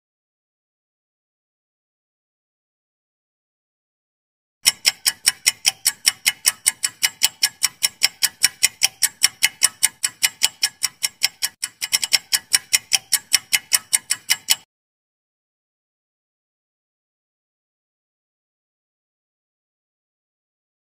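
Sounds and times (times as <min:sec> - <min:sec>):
timer ticking clicks: 0:04.6 - 0:14.7.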